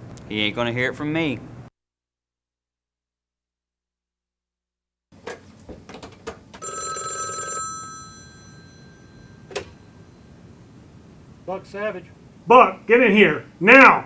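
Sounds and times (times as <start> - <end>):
telephone bell ringing: 6.6 - 10.4.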